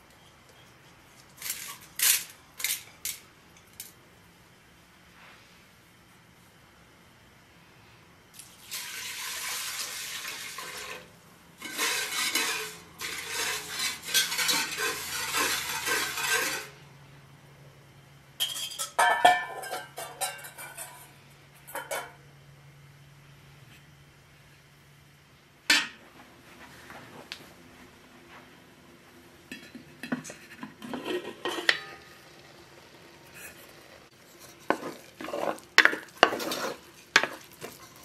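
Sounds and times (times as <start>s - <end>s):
steady hiss: 0.0s - 18.3s, 22.2s - 38.0s
metal spoon scraping a pot: 10.6s - 16.8s, 18.4s - 21.1s, 29.5s - 32.2s, 33.3s - 38.0s.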